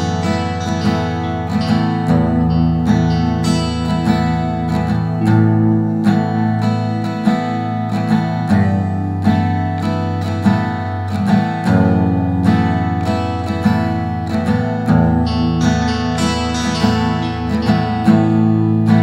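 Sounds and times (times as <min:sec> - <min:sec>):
acoustic guitar music: 0:00.0 - 0:19.0.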